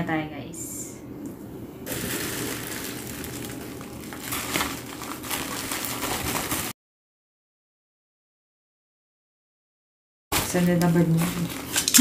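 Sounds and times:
bubble wrap crinkling: 1.9s - 6.8s, 10.3s - 12.0s.

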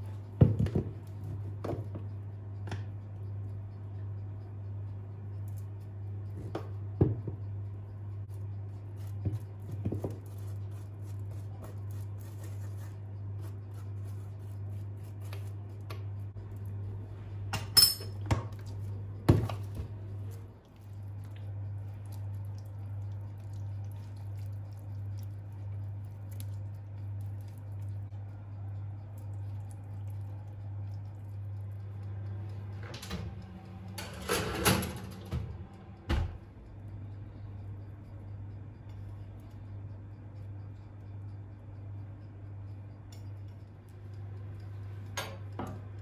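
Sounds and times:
low hum: 12.7s - 46.0s
metal spoon clinking kitchenware: 17.6s - 18.2s.

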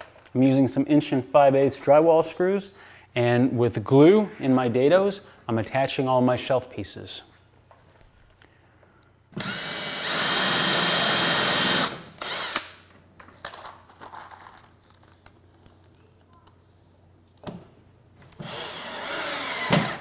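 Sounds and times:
cordless drill whine: 9.4s - 12.6s, 18.4s - 20.0s.

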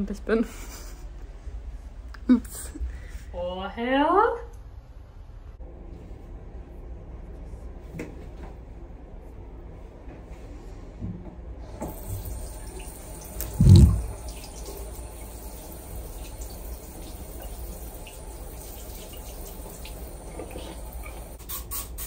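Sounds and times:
water splashing in plastic basin: 13.4s - 14.3s.

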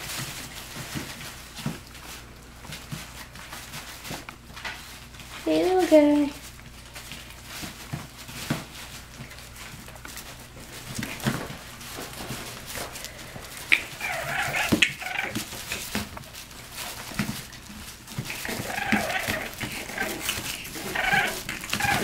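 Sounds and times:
puppies scuffling on cloth: 0.0s - 22.0s
puppy squeals and whimpers: 13.7s - 15.4s, 18.3s - 22.0s.

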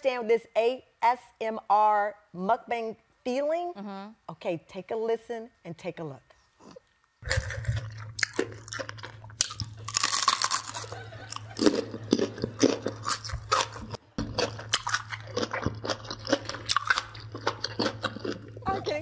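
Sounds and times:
steady low hum: 1.5s - 19.0s
wet chewing: 6.6s - 19.0s
crunching bites: 7.2s - 18.6s.

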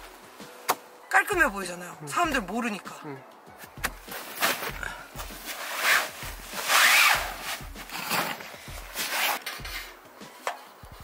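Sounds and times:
scraping rubbing noises: 3.6s - 10.0s.

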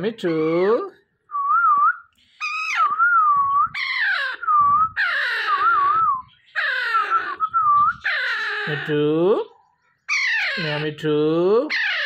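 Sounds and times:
parrot wavering whistles: 1.5s - 8.6s
parrot calls falling in pitch: 3.8s - 4.4s, 5.0s - 6.0s.

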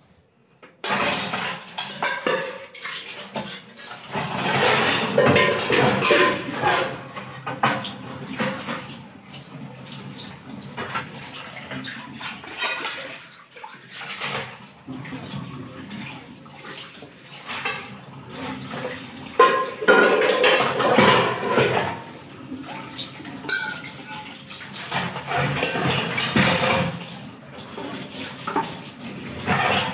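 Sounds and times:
tap water running and splashing: 0.6s - 29.9s
metal utensils clinking: 4.3s - 7.1s, 23.4s - 24.2s.

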